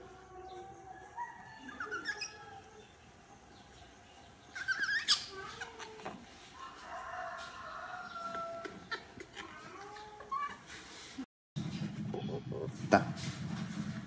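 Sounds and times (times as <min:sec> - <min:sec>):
monkey squealing: 0:01.7 - 0:02.4, 0:04.6 - 0:05.8
baby monkeys squeaking: 0:01.7 - 0:02.6, 0:04.5 - 0:06.1, 0:08.8 - 0:10.6.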